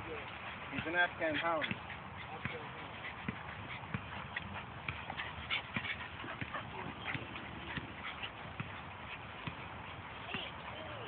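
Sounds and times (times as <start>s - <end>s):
dogs scuffling footsteps: 0.0s - 11.0s
dog vocal sounds: 1.2s - 9.2s.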